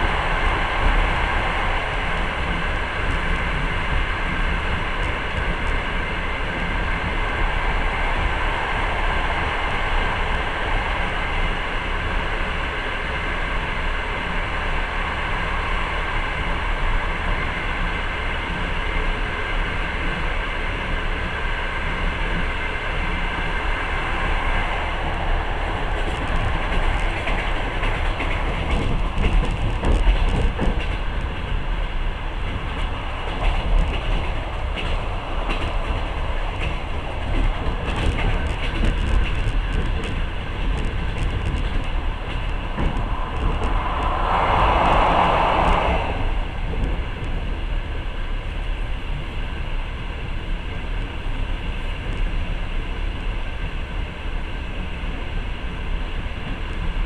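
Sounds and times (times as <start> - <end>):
freight train rushing past: 0.0 - 57.0
passenger train running noise: 0.0 - 57.0
wheels clicking over rail joints: 25.9 - 44.2.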